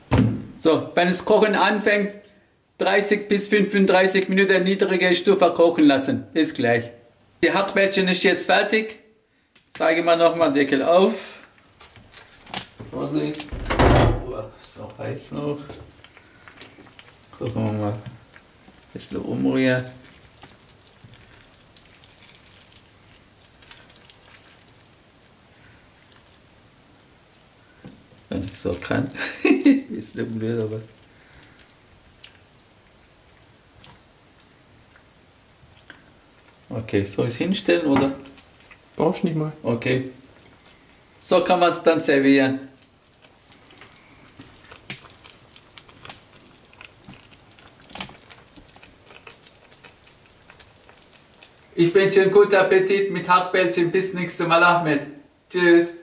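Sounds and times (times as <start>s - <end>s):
stew bubbling and popping: 11.4s - 53.1s.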